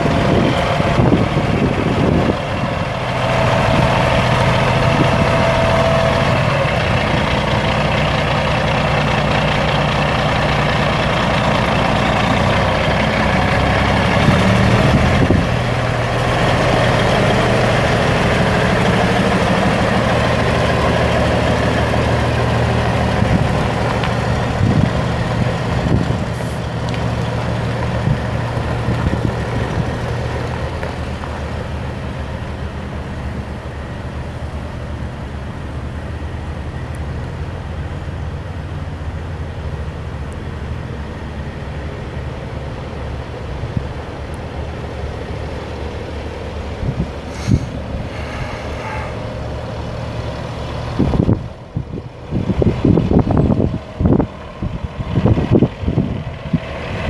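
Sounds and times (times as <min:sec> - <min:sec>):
truck diesel engine humming: 0:00.0 - 0:57.0.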